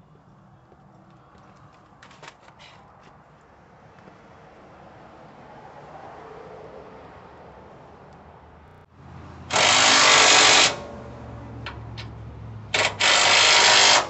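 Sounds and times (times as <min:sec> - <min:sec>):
cordless drill running: 0:09.5 - 0:10.8, 0:12.8 - 0:14.0.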